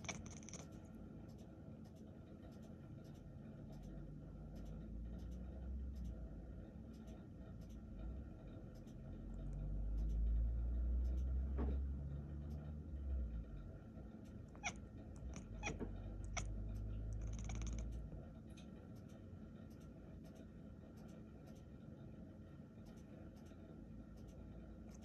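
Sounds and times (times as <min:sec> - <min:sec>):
cat chirping and chattering: 0:00.0 - 0:00.8, 0:14.3 - 0:18.0.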